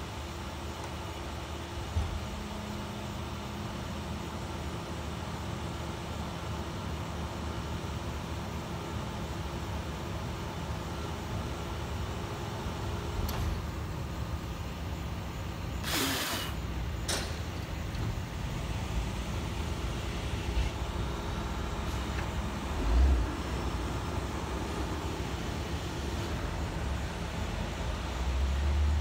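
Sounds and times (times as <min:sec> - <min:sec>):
truck diesel engine running: 0:01.3 - 0:29.0
air hiss bursts: 0:15.8 - 0:16.7.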